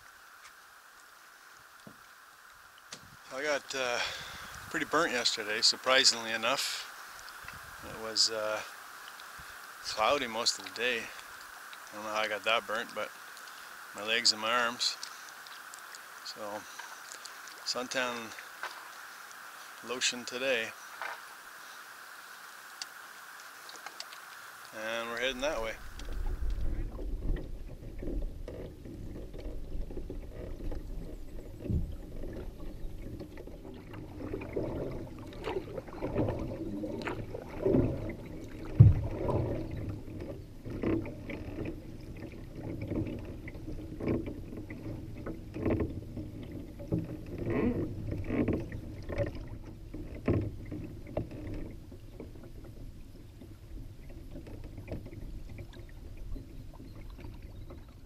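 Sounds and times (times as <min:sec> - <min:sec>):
paddle strokes through water: 0:00.0 - 0:58.0
water splashing along hull: 0:00.0 - 0:58.0.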